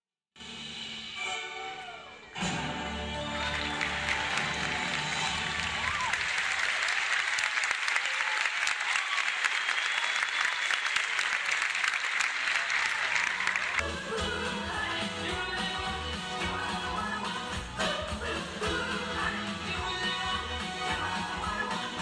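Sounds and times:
show music: 0:00.4 - 0:22.0
audience clapping: 0:02.9 - 0:13.9.

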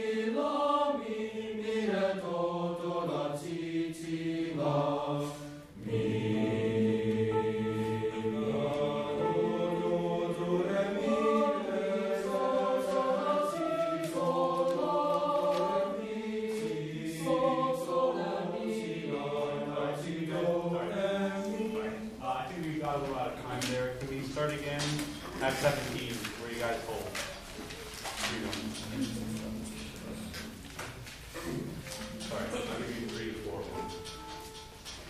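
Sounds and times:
boys' choir singing: 0:00.0 - 0:30.6, 0:31.2 - 0:35.0.

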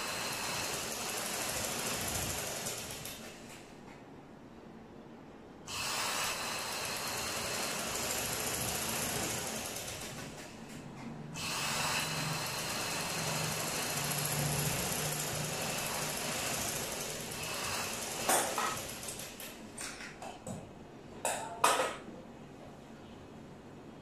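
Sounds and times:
sewing machine stitching: 0:00.0 - 0:03.5, 0:06.6 - 0:10.6, 0:11.4 - 0:19.5.

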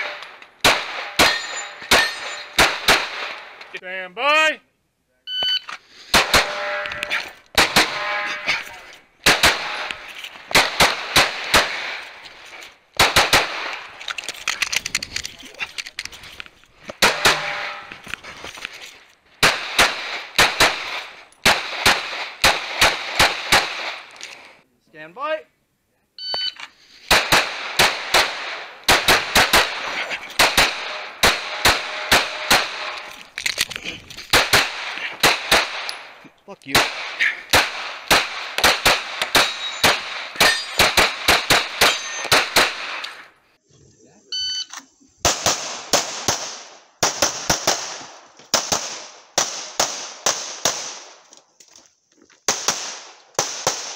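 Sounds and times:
pistol shots: 0:00.0 - 0:03.7, 0:06.1 - 0:08.6, 0:09.2 - 0:12.2, 0:13.0 - 0:13.9, 0:17.0 - 0:18.0, 0:19.4 - 0:24.1, 0:27.1 - 0:33.1, 0:34.3 - 0:43.2, 0:45.2 - 0:51.2, 0:52.5 - 0:53.9
steel targets ringing: 0:01.1 - 0:02.6, 0:06.4 - 0:07.2, 0:07.8 - 0:08.8, 0:17.0 - 0:18.0, 0:39.4 - 0:41.0, 0:41.8 - 0:42.3.

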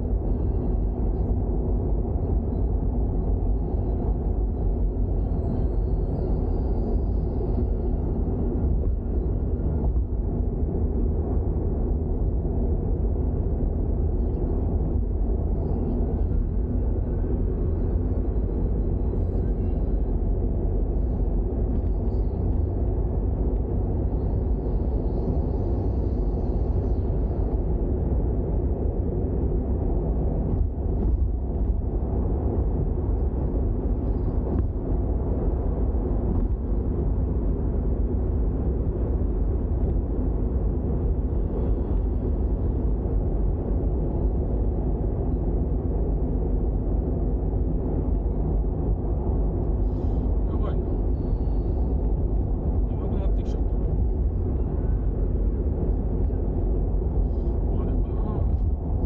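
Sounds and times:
car engine rumble: 0:00.0 - 0:59.0.

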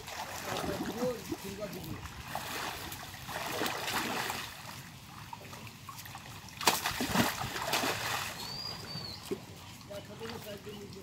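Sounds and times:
water splashing: 0:00.0 - 0:11.0.

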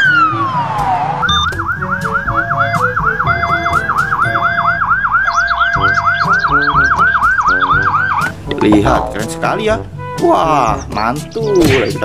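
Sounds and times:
police siren yelping: 0:00.0 - 0:08.4.

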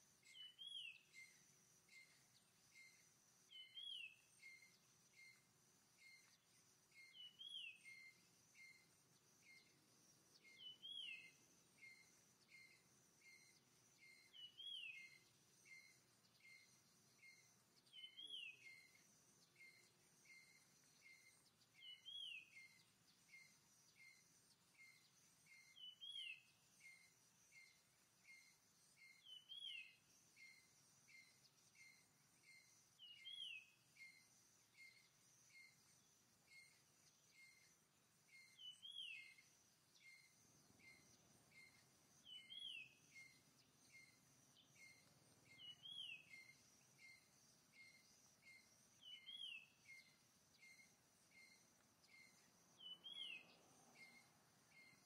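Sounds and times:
faint steady high tone: 0:00.0 - 0:55.0.

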